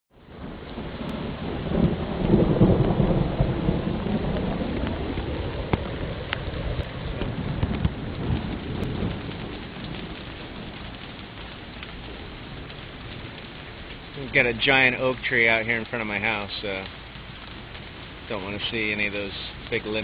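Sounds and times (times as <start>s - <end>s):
heavy rain on pavement: 0.1s - 20.0s
thunder rolling: 0.2s - 20.0s.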